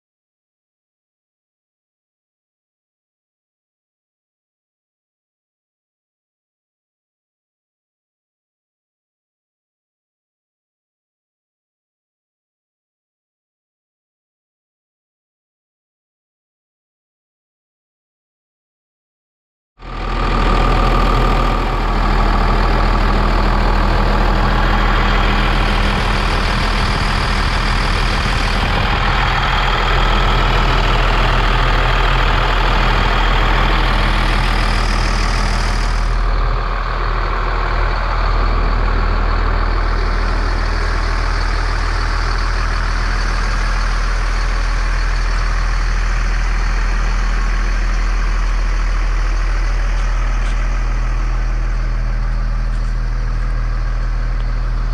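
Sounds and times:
truck diesel engine idling: 0:19.8 - 0:54.9.

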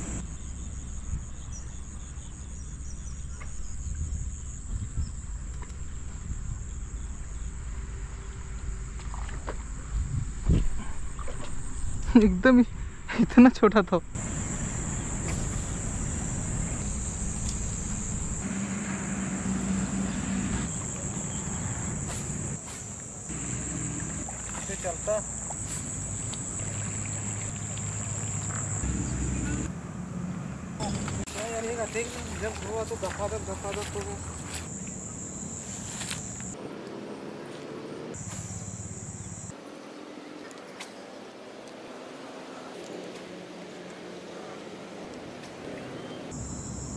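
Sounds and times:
insects chirring: 0:00.0 - 0:40.3, 0:46.0 - 0:46.9
faint outdoor background noise: 0:00.0 - 0:46.9
low outdoor rumble: 0:26.0 - 0:34.8.

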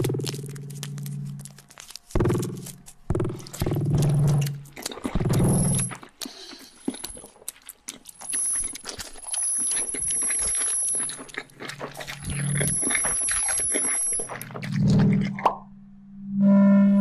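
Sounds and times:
low bass drone: 0:00.0 - 0:05.9, 0:14.3 - 0:17.0
clicks and crackles: 0:00.0 - 0:15.6
high synth tones: 0:16.2 - 0:17.0.

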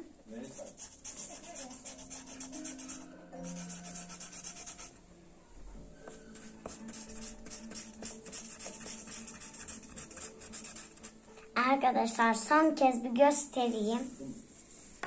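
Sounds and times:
marker pen scribbling on paper: 0:00.4 - 0:05.0, 0:06.1 - 0:11.2.

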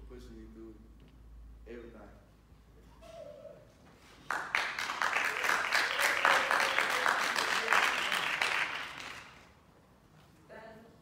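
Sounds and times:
audience applauding: 0:04.2 - 0:09.5.

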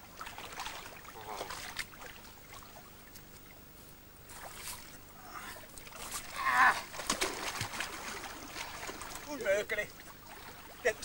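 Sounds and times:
river water splashing: 0:00.0 - 0:11.0
short voice-like cry: 0:06.3 - 0:06.9.

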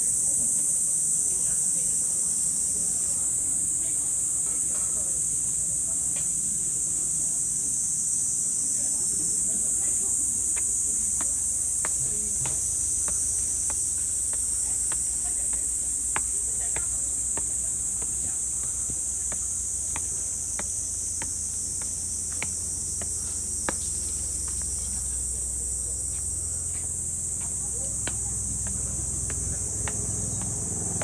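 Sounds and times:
cicadas buzzing: 0:00.0 - 0:31.0
footsteps on stone steps: 0:09.7 - 0:31.0.

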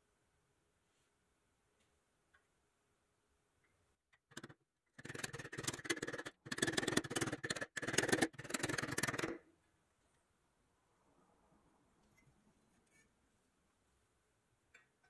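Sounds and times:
stick scraping metal toy truck: 0:04.2 - 0:09.4.

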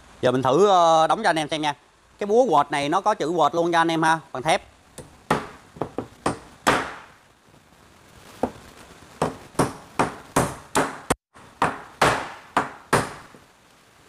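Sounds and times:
hammer striking nail into wood: 0:05.0 - 0:07.1, 0:09.2 - 0:13.4.

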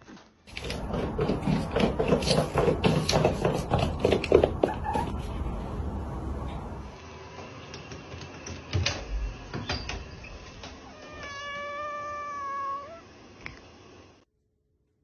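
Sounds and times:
cat meowing: 0:10.8 - 0:13.1.

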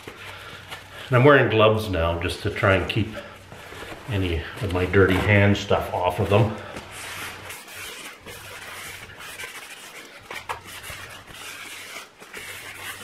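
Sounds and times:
cloth scrubbing metal: 0:04.2 - 0:13.0.

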